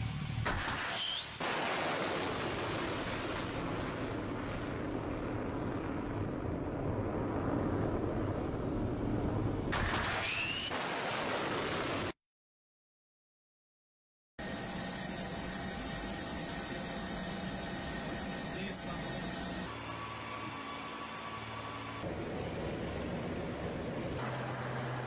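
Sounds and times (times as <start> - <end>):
rocket motor roar: 14.4 - 25.0.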